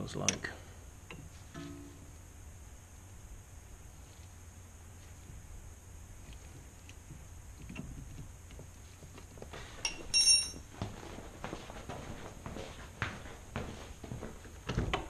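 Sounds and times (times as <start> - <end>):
shuffling and handling noise: 3.9 - 5.6, 6.2 - 14.9
knocks and footsteps: 4.2 - 15.0
metal spanner clinking on floor: 9.8 - 10.7.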